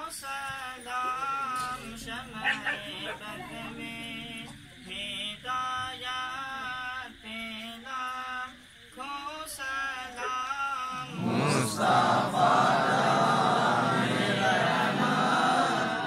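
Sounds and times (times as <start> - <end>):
group of voices chanting: 11.0 - 16.0
person chanting melodic phrases: 11.0 - 16.0.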